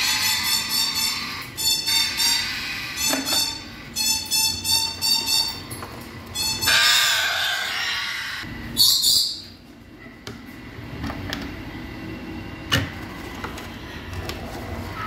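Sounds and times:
parrot screeching: 0:00.0 - 0:05.6, 0:06.4 - 0:09.4.

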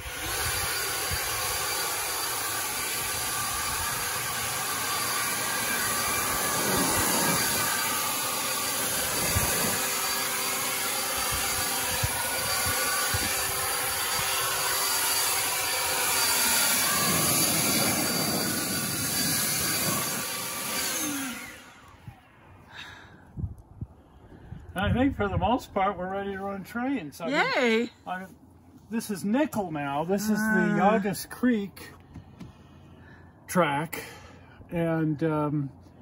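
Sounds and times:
leaf blower running: 0:00.0 - 0:23.0.

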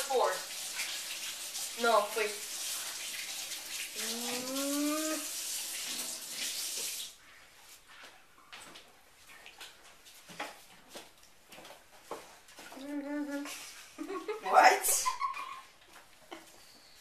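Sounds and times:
boy's muffled vocal sound: 0:04.0 - 0:05.2, 0:12.8 - 0:13.6.

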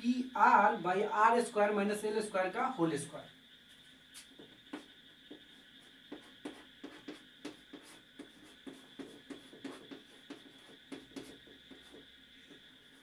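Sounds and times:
chalk tapping on chalkboard: 0:04.2 - 0:12.7.

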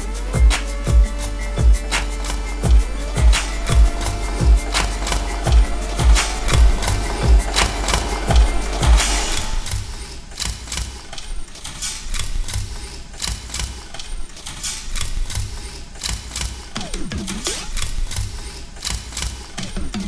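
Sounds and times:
pitch sweep: 0:00.0 - 0:09.9
music with clicking percussion: 0:00.0 - 0:11.1.

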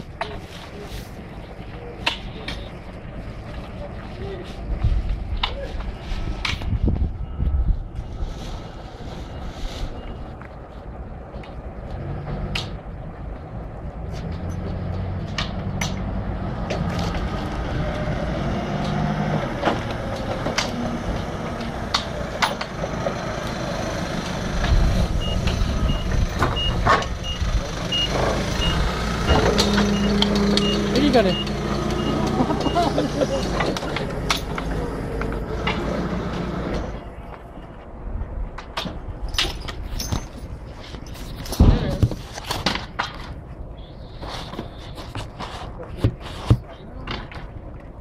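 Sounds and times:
forklift engine running: 0:16.0 - 0:37.3
reversing alarm beeping: 0:25.2 - 0:33.0.

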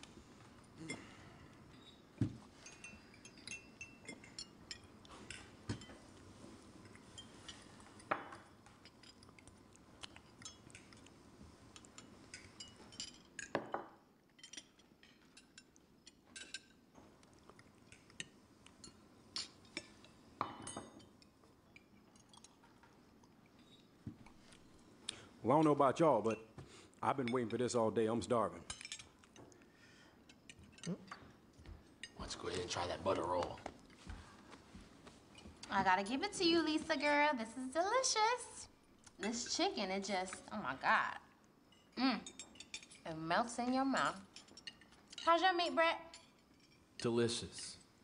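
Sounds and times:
glass clinking: 0:00.8 - 0:06.2, 0:06.8 - 0:09.4, 0:10.2 - 0:11.1, 0:11.7 - 0:16.8, 0:17.8 - 0:22.9, 0:41.6 - 0:43.0, 0:43.6 - 0:45.4
cutlery clinking on plates: 0:01.8 - 0:06.1.

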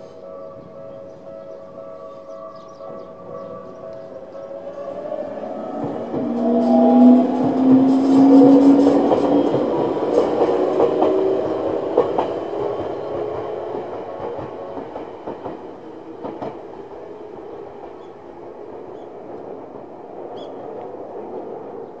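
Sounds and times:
electric train passing: 0:00.0 - 0:22.0
wheels clacking over rail joints: 0:04.7 - 0:17.0.

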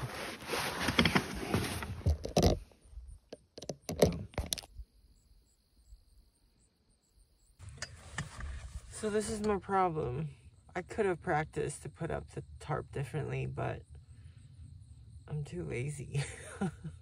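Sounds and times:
tarp bag rustling over carpet: 0:00.0 - 0:02.1.

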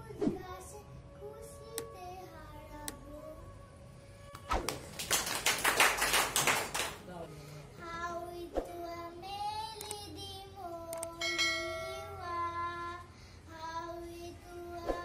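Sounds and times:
girl singing unaccompanied: 0:00.0 - 0:03.8, 0:07.6 - 0:15.0.

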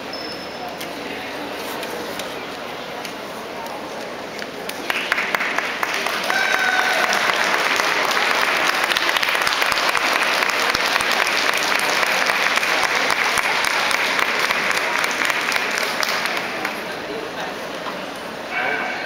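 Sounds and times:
audience applauding: 0:04.7 - 0:16.9.

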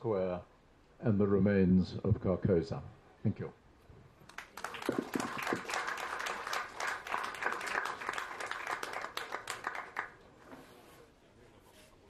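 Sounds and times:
audience applauding: 0:04.3 - 0:10.3.

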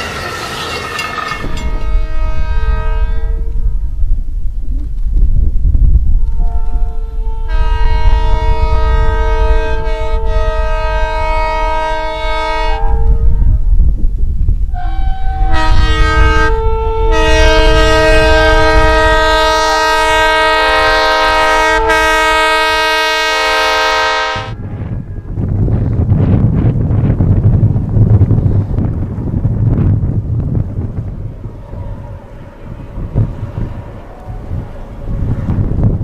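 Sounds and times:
low rumble of locomotive: 0:00.0 - 0:36.0
locomotive air horn blasts: 0:01.5 - 0:03.9, 0:06.2 - 0:13.6, 0:14.7 - 0:25.1.

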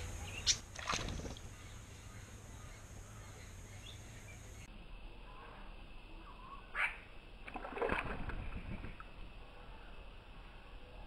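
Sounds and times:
faint bird calls: 0:00.0 - 0:07.2
bird splashing in water: 0:00.4 - 0:01.6, 0:07.4 - 0:09.0.

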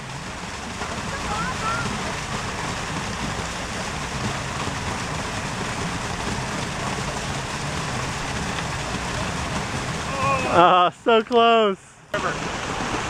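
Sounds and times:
water running over rocks: 0:00.0 - 0:13.0.

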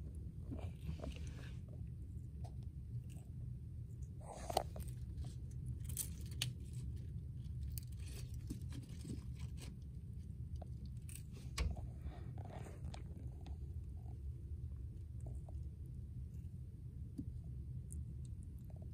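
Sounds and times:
low hum: 0:00.0 - 0:18.9
tortoise crunching lettuce: 0:02.4 - 0:13.7.

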